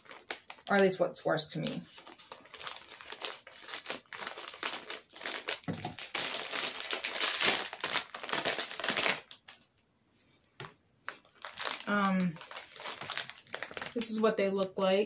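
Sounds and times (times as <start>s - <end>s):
plastic pouch crinkling: 0.0s - 9.7s, 11.1s - 14.3s.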